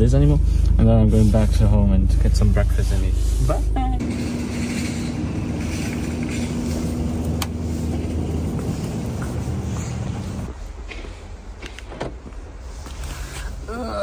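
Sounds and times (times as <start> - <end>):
refrigerator display cases humming: 3.6 - 14.0.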